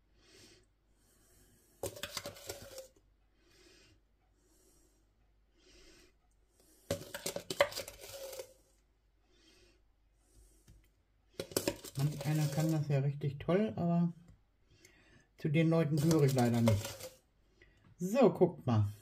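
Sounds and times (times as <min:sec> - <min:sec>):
metal spoon scraping a container: 0:01.8 - 0:03.0, 0:06.8 - 0:08.7, 0:11.4 - 0:13.0, 0:15.7 - 0:17.2.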